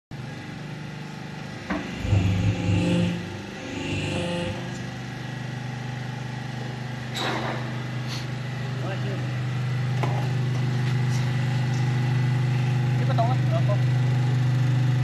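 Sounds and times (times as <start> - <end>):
machine humming: 0.3 - 7.1
machine motion: 1.4 - 5.6.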